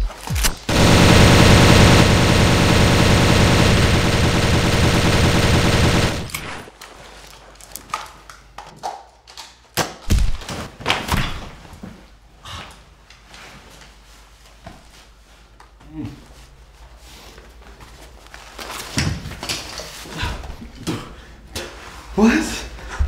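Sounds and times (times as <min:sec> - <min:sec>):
rapid airsoft gunfire: 0:00.7 - 0:06.7.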